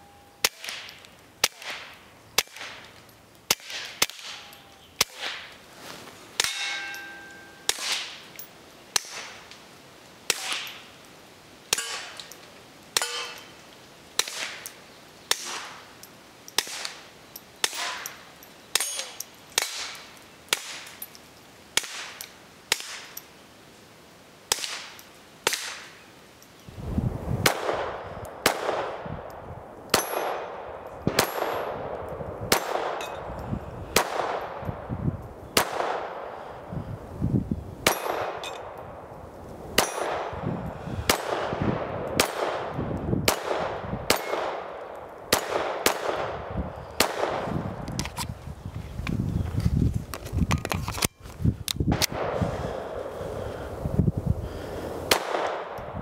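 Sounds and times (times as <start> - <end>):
bullets hitting steel plates: 6.4 - 8.2, 11.7 - 12.4, 13.0 - 13.6, 17.6 - 21.1, 29.9 - 30.5, 37.9 - 38.7, 39.8 - 40.3, 44.1 - 44.4
pistol shots: 27.4 - 29.0, 29.9 - 33.0, 34.0 - 34.7, 35.6 - 36.3, 41.1 - 47.4, 55.1 - 55.9.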